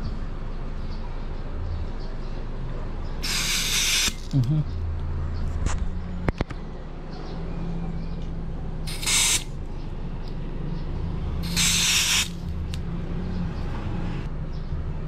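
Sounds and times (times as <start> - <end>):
gas hissing from can: 3.2 - 4.3, 8.9 - 9.5, 11.4 - 12.4.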